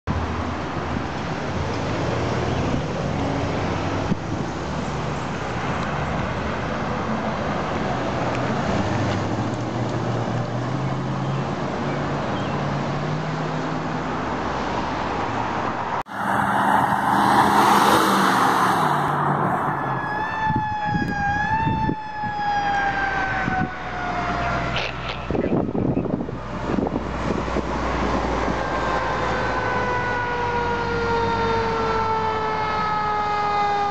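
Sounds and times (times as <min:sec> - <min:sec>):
fire truck engine and tyres: 0:00.1 - 0:33.9
loud rush of passing vehicle: 0:00.1 - 0:33.9
siren wailing: 0:16.1 - 0:24.8, 0:28.7 - 0:33.9.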